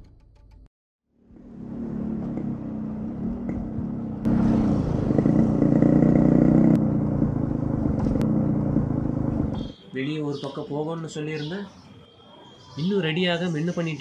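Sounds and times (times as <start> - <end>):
motorcycle engine running: 1.3 - 9.7.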